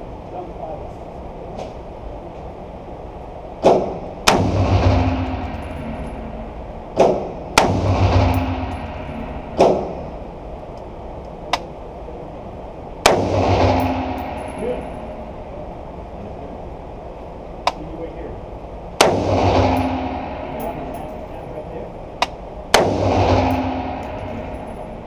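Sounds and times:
rifle shots: 0:03.7 - 0:05.8, 0:07.0 - 0:10.0, 0:13.0 - 0:15.1, 0:19.0 - 0:21.1, 0:22.7 - 0:24.8
low booming echo: 0:03.7 - 0:10.4, 0:13.0 - 0:15.6, 0:19.0 - 0:21.9, 0:22.7 - 0:25.0.

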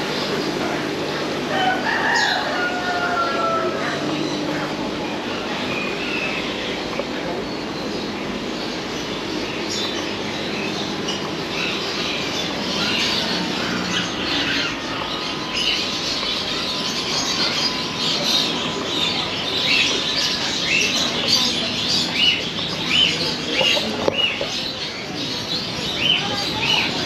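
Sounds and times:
small birds chirping: 0:00.0 - 0:27.0
steady background hum: 0:00.0 - 0:27.0.

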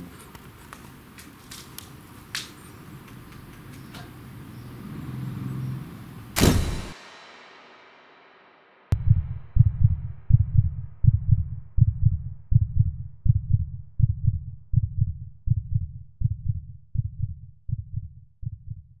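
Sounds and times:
heartbeat thumping: 0:08.9 - 0:19.0.

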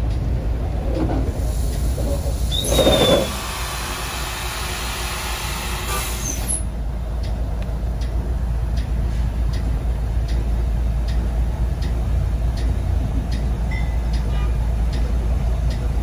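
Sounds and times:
steady low rumble: 0:00.0 - 0:05.5, 0:06.6 - 0:16.0
air brakes hissing: 0:01.3 - 0:06.7
falling squeal: 0:02.4 - 0:03.4.

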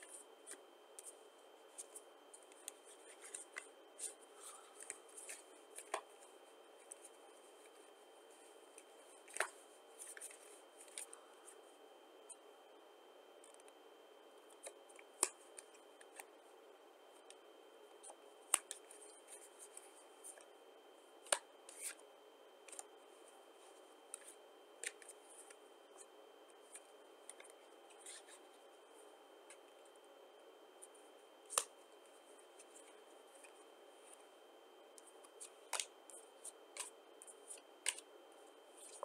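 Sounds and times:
playing cards rustling: 0:00.0 - 0:11.2, 0:21.3 - 0:22.0, 0:26.6 - 0:28.5, 0:35.0 - 0:38.1.

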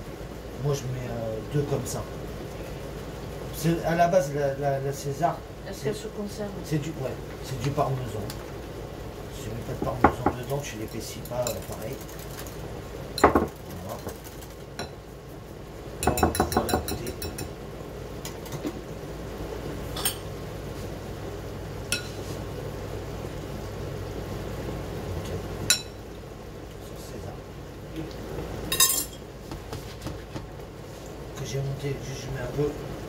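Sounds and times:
spoon clinking against glass bowl: 0:16.0 - 0:17.6, 0:25.7 - 0:26.0, 0:28.7 - 0:29.2.

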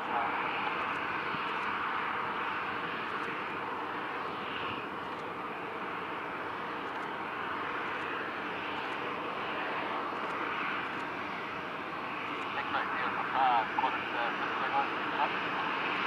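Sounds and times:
jet engines running steadily: 0:00.0 - 0:16.0.

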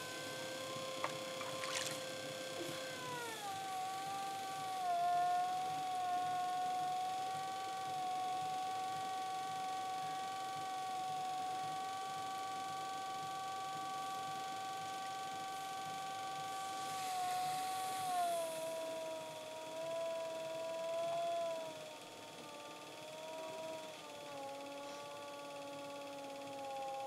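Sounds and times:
potter's wheel motor whining: 0:00.0 - 0:27.0.

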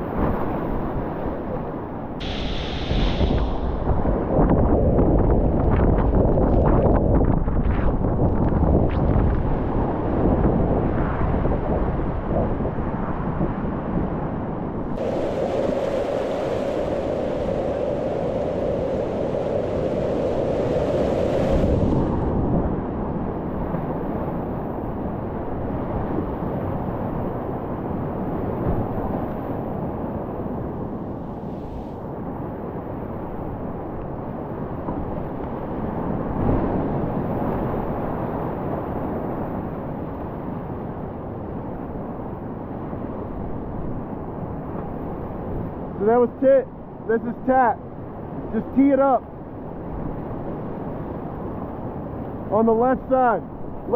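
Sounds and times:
wind buffeting microphone: 0:00.0 - 0:46.0
whitewater rushing through rapid: 0:15.0 - 0:21.9.

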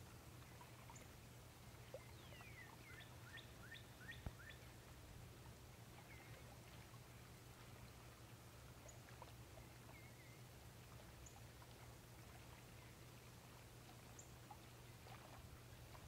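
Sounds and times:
low steady hum: 0:00.0 - 0:16.0
faint bird chirps: 0:01.8 - 0:04.7.

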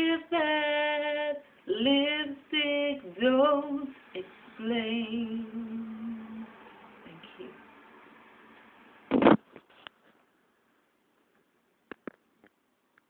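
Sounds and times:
woman singing unaccompanied: 0:00.0 - 0:07.6.

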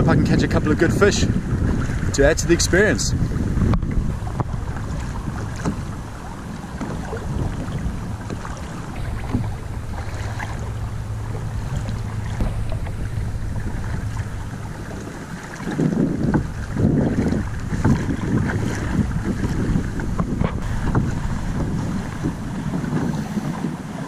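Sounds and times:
water washing along hull: 0:00.0 - 0:24.0
wind rumble on microphone: 0:00.0 - 0:24.0.

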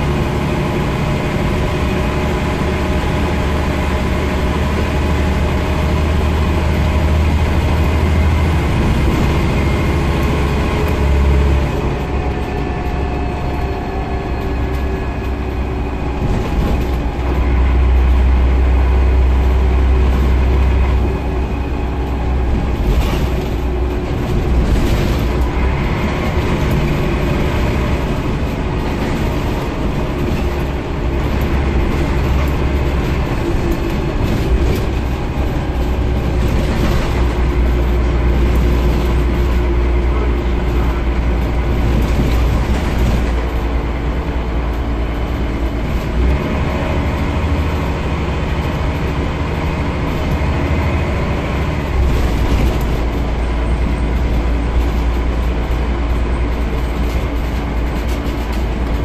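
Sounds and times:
bus diesel engine drone: 0:00.0 - 0:59.0
road noise: 0:00.0 - 0:59.0.

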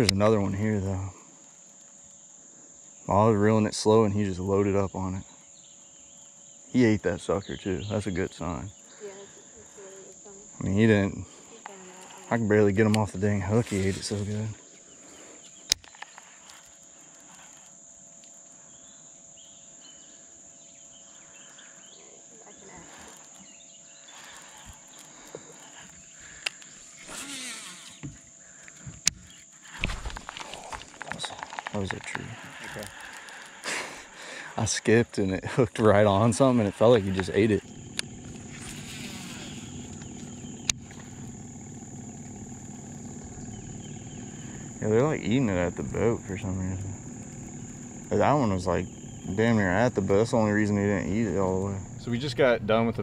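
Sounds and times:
high-pitched insect drone: 0:00.0 - 0:53.0
faint bird chirps: 0:18.5 - 0:28.6, 0:36.0 - 0:53.0
low steady hum: 0:33.8 - 0:53.0.

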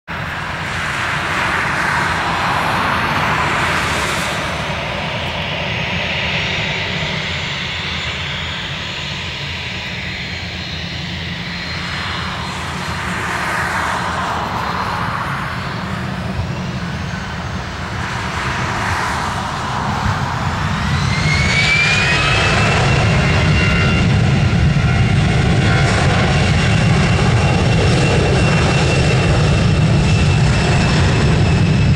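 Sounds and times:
jet engines running: 0:00.1 - 0:31.9
rising jet engine whine: 0:00.1 - 0:31.9.

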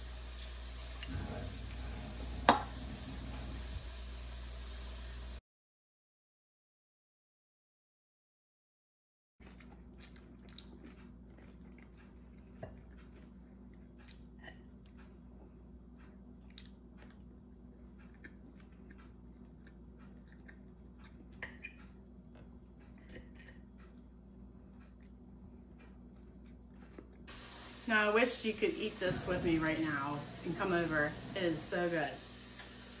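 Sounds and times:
man chewing: 0:09.4 - 0:27.7.

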